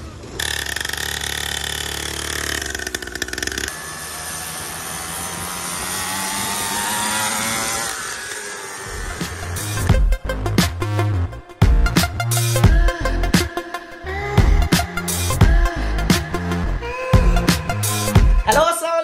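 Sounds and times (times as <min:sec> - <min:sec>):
small petrol engine revving: 0:00.0 - 0:10.4.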